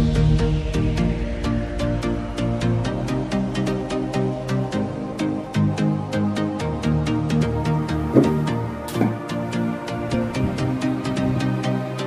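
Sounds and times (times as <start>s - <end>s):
electronic music with synths: 6.8s - 12.0s.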